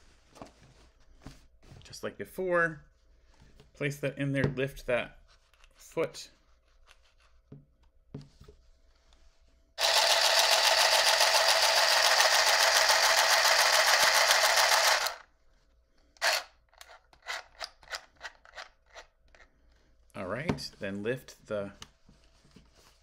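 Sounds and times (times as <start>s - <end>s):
sewing machine needle rattling: 9.8s - 15.2s.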